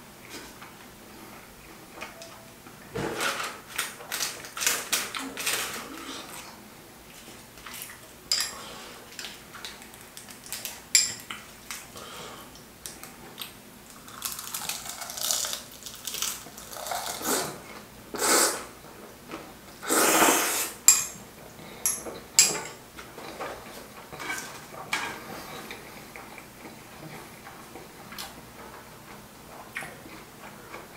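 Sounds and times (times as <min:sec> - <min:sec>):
noodles being slurped: 0:13.9 - 0:17.6, 0:19.8 - 0:20.8.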